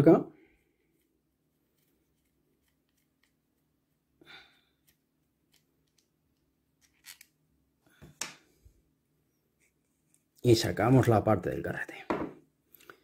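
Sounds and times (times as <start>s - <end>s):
small metal parts clicking: 6.8s - 7.3s.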